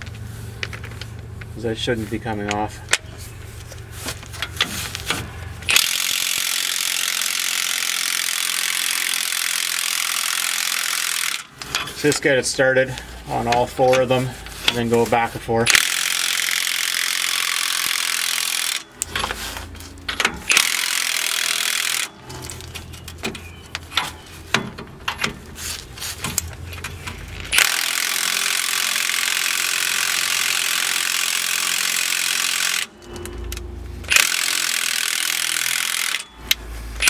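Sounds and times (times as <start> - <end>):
impact wrench hammering: 4.4 - 12.0, 15.7 - 19.4, 20.0 - 22.4, 27.5 - 36.6.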